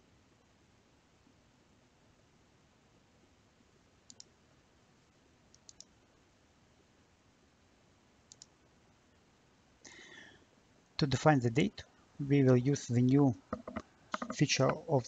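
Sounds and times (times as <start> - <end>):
computer mouse clicking: 4.1 - 4.3, 5.5 - 5.9, 8.3 - 8.5, 13.5 - 14.8.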